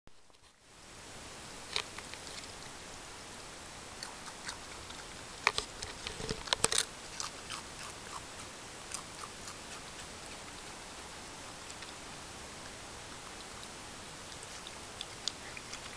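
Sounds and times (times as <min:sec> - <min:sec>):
steady hiss: 0:00.2 - 0:15.9
raccoon crunching chips: 0:01.6 - 0:02.7, 0:04.0 - 0:10.8, 0:14.3 - 0:15.9.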